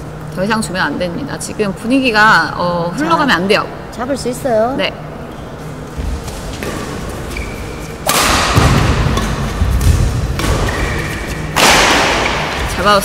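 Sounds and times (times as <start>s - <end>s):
racket striking shuttlecock: 6.6s - 12.7s.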